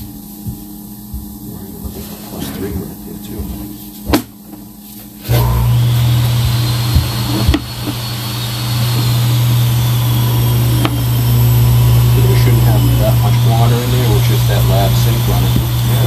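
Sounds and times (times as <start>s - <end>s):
machine motor humming: 5.2s - 16.0s.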